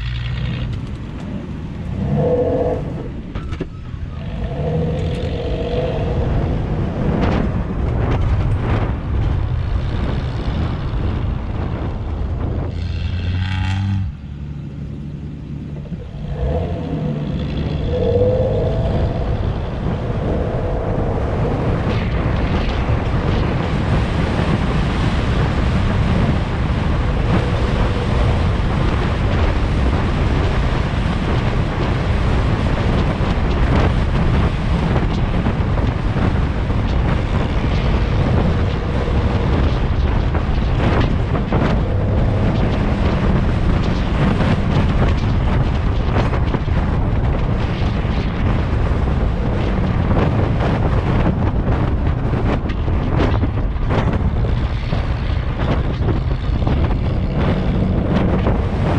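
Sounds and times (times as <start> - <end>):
low rumble of moving vehicle: 0.0 - 58.9
wind buffeting microphone: 0.0 - 58.9.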